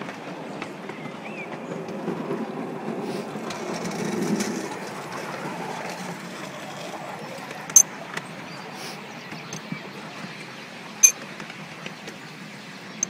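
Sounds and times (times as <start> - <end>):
train wheels clattering on track: 0.0 - 6.7.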